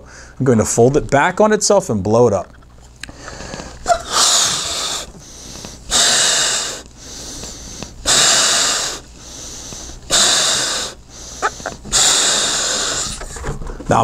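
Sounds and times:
person blowing into balloon: 3.1 - 13.4.

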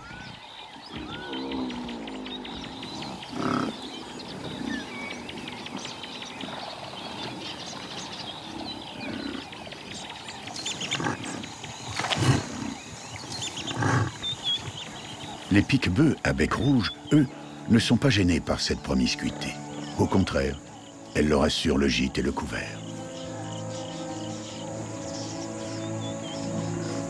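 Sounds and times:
small birds chirping: 0.0 - 27.0
buffalo grunting and bellowing: 0.9 - 17.6.

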